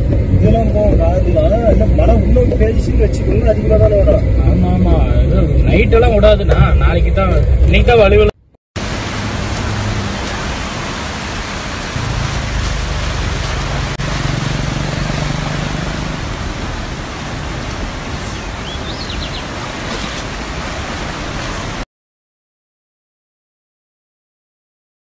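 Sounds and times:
floodwater rushing: 8.8 - 21.8.

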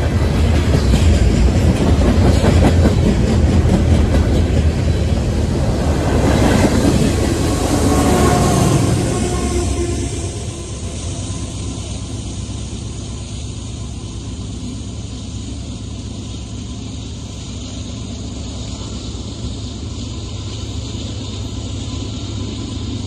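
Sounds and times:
freight train rumble and hiss: 0.0 - 23.0.

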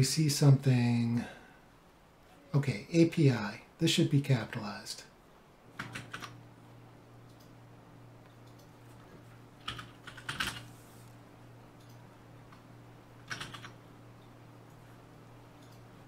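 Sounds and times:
steady low hum: 0.0 - 16.0
computer keyboard typing: 5.8 - 6.4, 9.6 - 10.7, 13.2 - 13.8.

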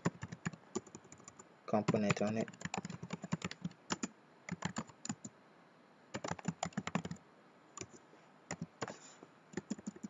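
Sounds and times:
typing on computer keyboard: 0.0 - 5.3, 6.1 - 7.2, 7.8 - 8.9, 9.5 - 10.0.

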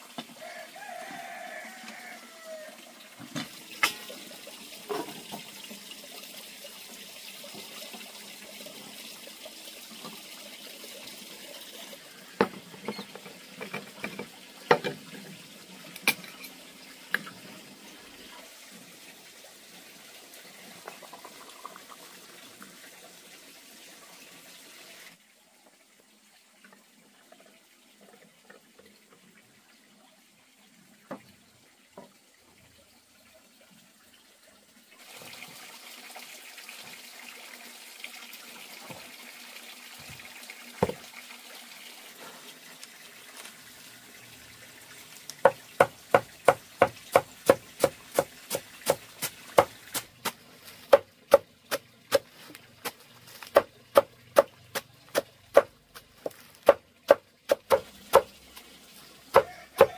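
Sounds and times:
machete chopping greens on stone: 45.5 - 52.3, 52.9 - 54.5, 55.1 - 58.3.

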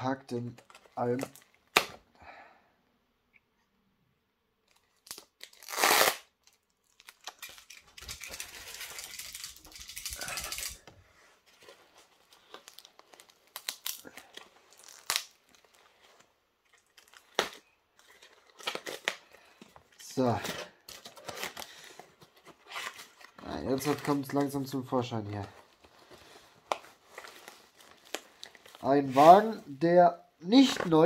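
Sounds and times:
paper and tape tearing: 5.0 - 6.3, 12.6 - 15.7
paper crinkling: 6.4 - 29.6.

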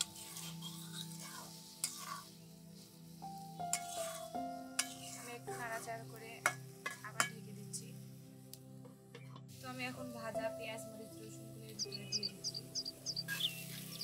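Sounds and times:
metal spatula scraping and knocking pan: 0.0 - 2.3, 3.7 - 5.8, 6.4 - 7.4
beans sizzling in a pan: 0.0 - 8.8, 9.5 - 14.0.

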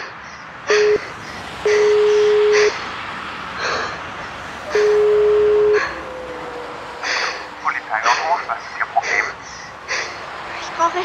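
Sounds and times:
pulsed telephone tone: 1.7 - 2.8, 4.7 - 8.2.

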